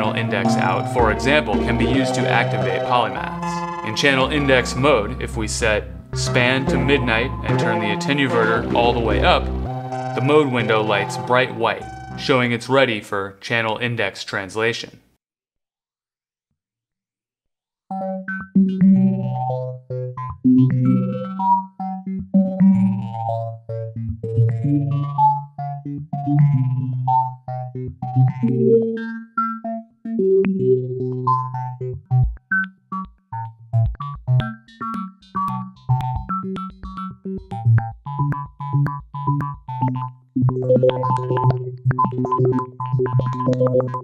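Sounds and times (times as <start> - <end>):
synth bass line: 0.0 - 12.5, 35.4 - 44.0
synthesizer short pitched notes: 0.1 - 12.5.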